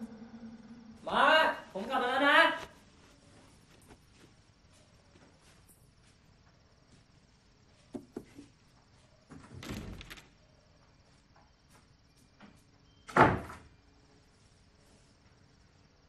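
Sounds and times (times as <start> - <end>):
crickets chirping: 0.0 - 16.0
light knocks on door: 7.9 - 8.5.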